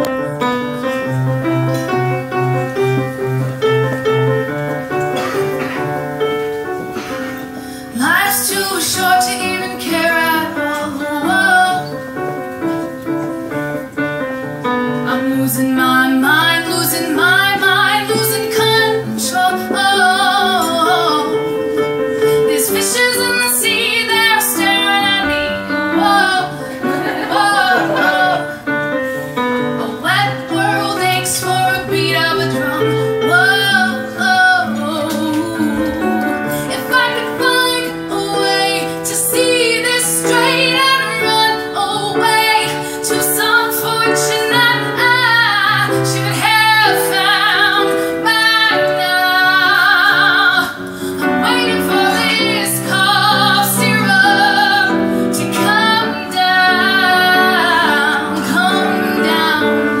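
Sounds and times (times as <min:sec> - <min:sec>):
piano: 0:00.0 - 1:00.0
woman singing pop song: 0:07.0 - 0:11.9, 0:14.9 - 0:28.6, 0:29.6 - 1:00.0.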